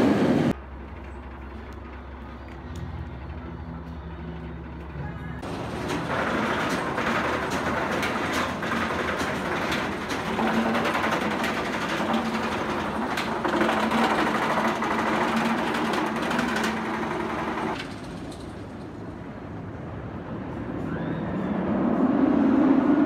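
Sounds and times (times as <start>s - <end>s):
roller coaster lift chain clattering: 0.5s - 19.3s
rapid anti-rollback clicking: 5.4s - 18.9s.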